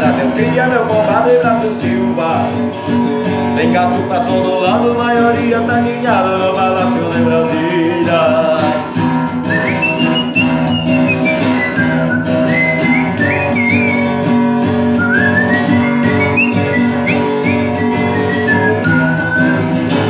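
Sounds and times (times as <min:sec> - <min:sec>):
acoustic guitar strumming: 0:00.0 - 0:20.0
man whistling: 0:09.3 - 0:20.0.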